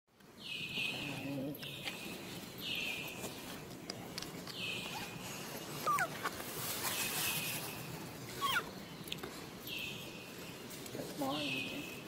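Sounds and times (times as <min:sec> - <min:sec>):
baby monkey squealing: 0:05.8 - 0:06.2, 0:08.4 - 0:08.7.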